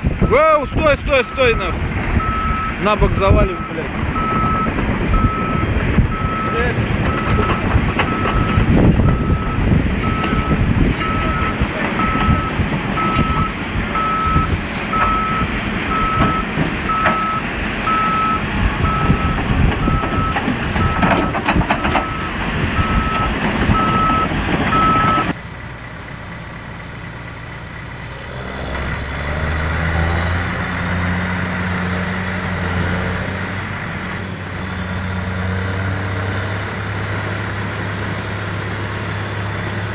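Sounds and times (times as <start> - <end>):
heavy diesel machinery running: 0.0 - 39.9
backup alarm beeping: 1.2 - 2.8, 3.5 - 25.3.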